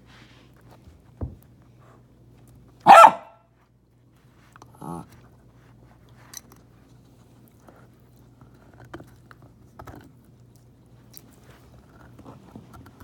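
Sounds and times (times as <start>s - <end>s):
dog barking sharply: 2.8s - 3.4s
dog growling: 4.8s - 5.1s.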